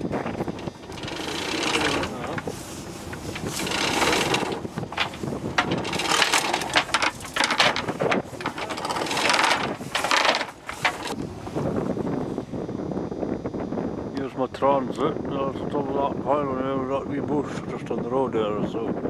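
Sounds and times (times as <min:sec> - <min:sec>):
anchor chain clattering: 0:00.0 - 0:11.2.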